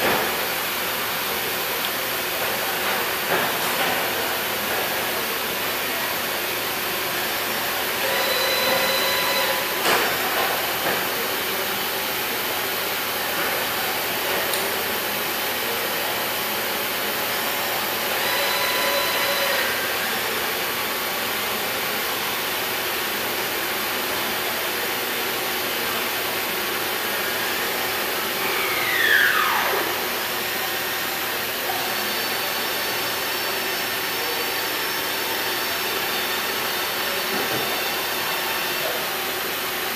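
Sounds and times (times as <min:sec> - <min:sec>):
boring mill machine running: 0:03.1 - 0:22.7, 0:26.3 - 0:39.9
machine whines: 0:07.8 - 0:10.0, 0:18.0 - 0:20.2, 0:27.1 - 0:38.9.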